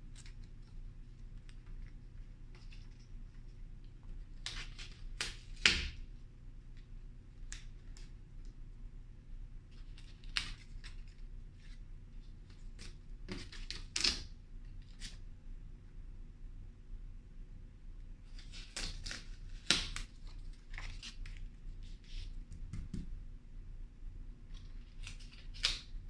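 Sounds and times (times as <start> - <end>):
low steady hum: 0.0 - 26.0
paper rustling: 18.2 - 22.5, 24.5 - 26.0.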